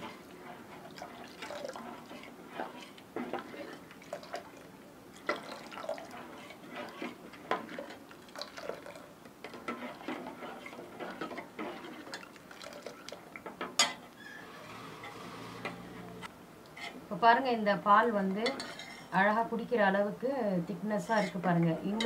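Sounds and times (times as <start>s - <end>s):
ladle scraping and clinking in saucepan: 0.0s - 4.5s, 5.2s - 14.0s, 18.4s - 19.2s.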